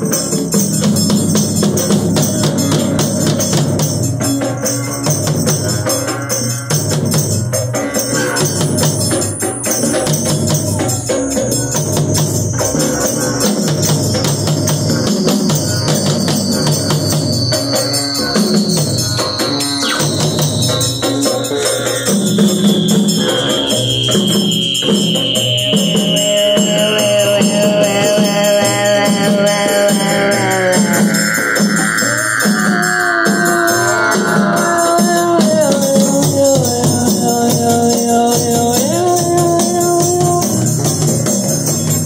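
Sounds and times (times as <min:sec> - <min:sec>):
hand drums playing: 0:00.0 - 0:42.0
rattling percussion: 0:00.0 - 0:42.0
thin high tone sliding down: 0:15.2 - 0:40.6.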